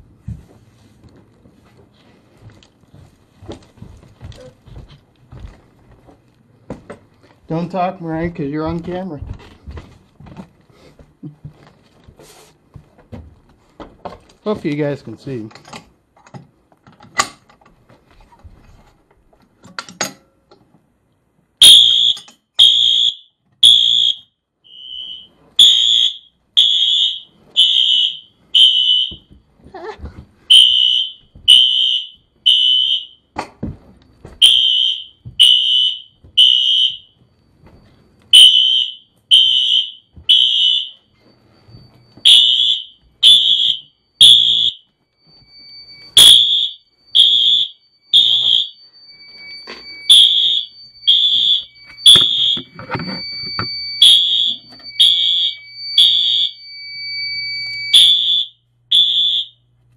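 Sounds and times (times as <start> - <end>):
fire alarm beeping: 21.6 - 29.5, 30.5 - 33.4, 34.0 - 59.8.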